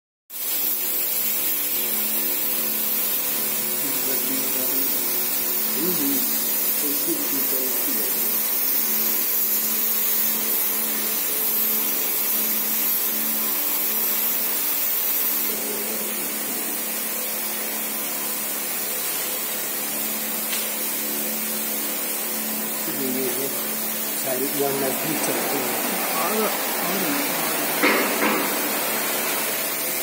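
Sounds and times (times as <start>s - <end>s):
power equipment humming: 3.8s - 8.0s, 20.5s - 30.0s.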